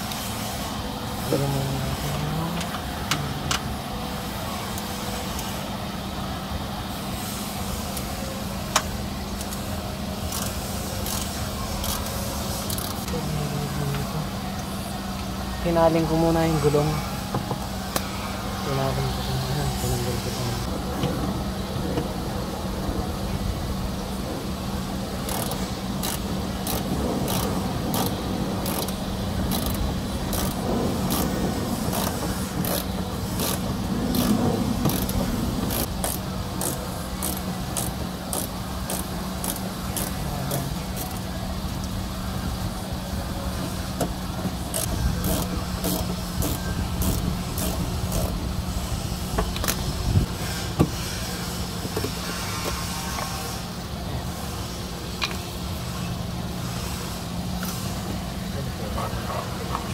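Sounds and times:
steady low hum: 0:00.0 - 0:59.9
screw clicking into plastic: 0:44.7 - 0:48.3.

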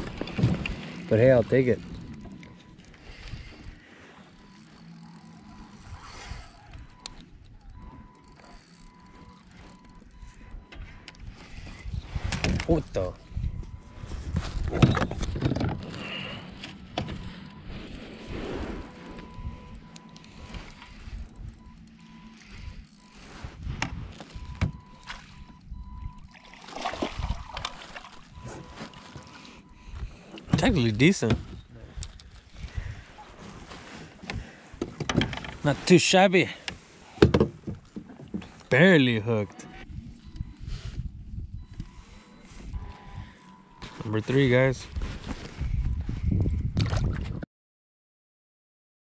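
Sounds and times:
fishing reel winding: 0:02.8 - 0:10.1, 0:20.2 - 0:23.4
wind rumble on microphone: 0:10.5 - 0:15.9, 0:22.6 - 0:26.3, 0:31.4 - 0:33.1, 0:39.8 - 0:43.3, 0:44.8 - 0:47.4
fish thrashing and splashing: 0:26.2 - 0:29.6.

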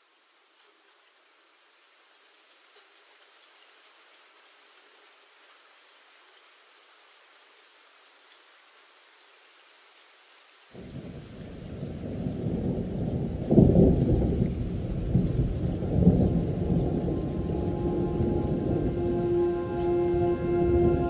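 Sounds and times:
rain: 0:00.0 - 0:21.0
thunder rumbling: 0:10.8 - 0:21.0
musical drone: 0:16.6 - 0:21.0.

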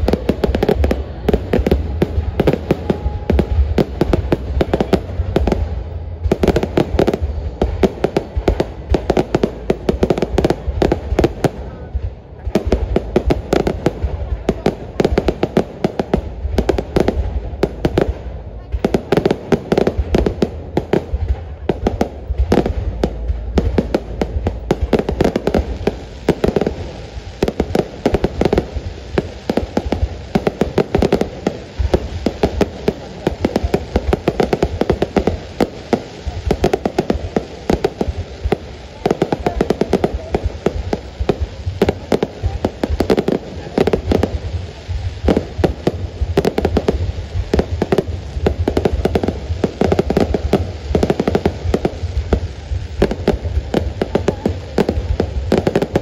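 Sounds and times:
fireworks bursting with crackles: 0:00.0 - 0:56.0.

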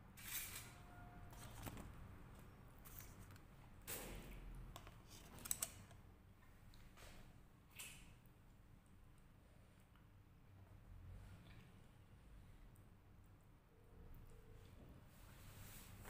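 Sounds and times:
fork scraping foil tray: 0:00.2 - 0:01.5.

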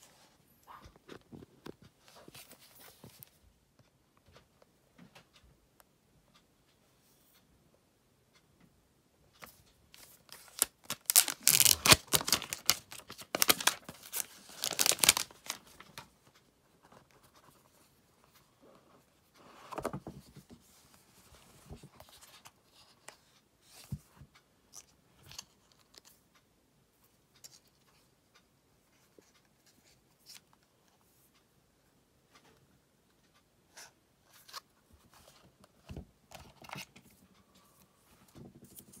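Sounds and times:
paper tearing and crackling: 0:10.4 - 0:15.6.

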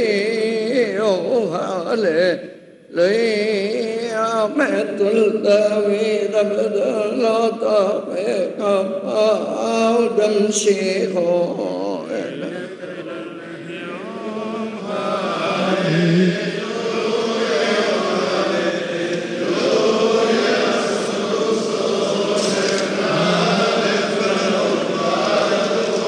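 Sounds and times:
men chanting a hymn: 0:00.0 - 0:26.0.

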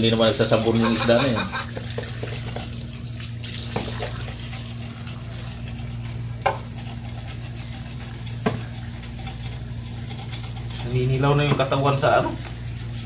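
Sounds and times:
tap water running into sink: 0:00.8 - 0:10.7.

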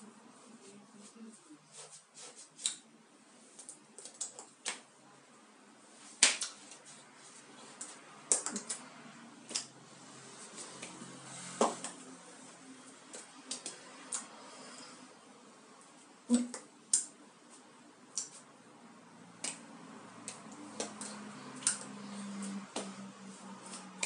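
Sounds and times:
faint low room hum: 0:00.0 - 0:24.0
hands tapping and slapping: 0:06.2 - 0:06.8, 0:07.8 - 0:08.8, 0:19.4 - 0:19.6, 0:22.7 - 0:23.0.

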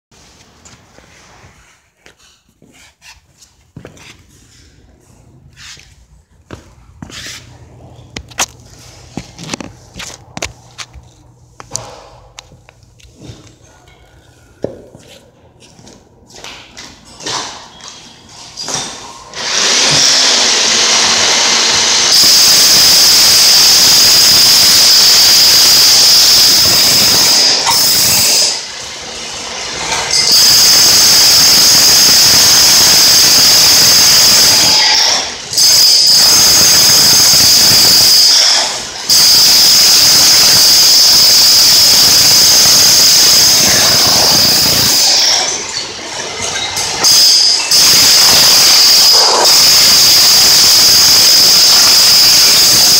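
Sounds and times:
high whine: 0:21.0 - 0:29.0, 0:29.7 - 0:52.9.

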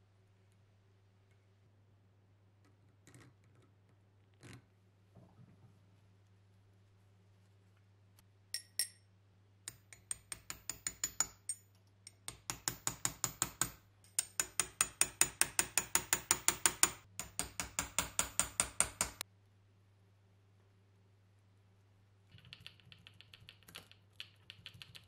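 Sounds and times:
hammer tapping steel punch: 0:09.7 - 0:19.2.

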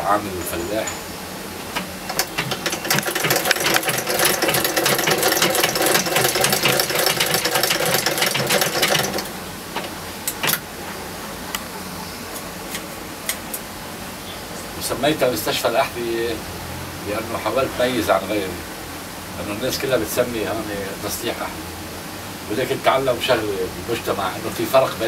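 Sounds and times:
sewing machine clattering: 0:01.8 - 0:10.6
sewing machine hum: 0:02.1 - 0:10.6.

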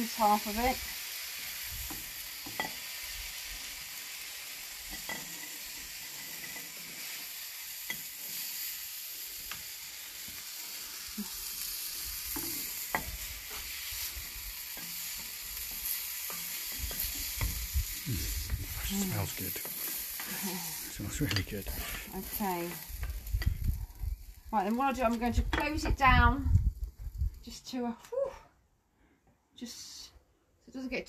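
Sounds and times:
food sizzling on a griddle: 0:00.0 - 0:27.6
wooden spatula scraping and tapping: 0:12.3 - 0:18.6.

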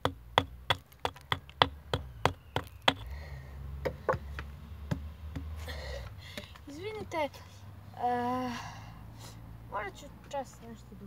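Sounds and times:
sharp knocks on wooden shaft: 0:00.0 - 0:03.1, 0:03.8 - 0:05.6.

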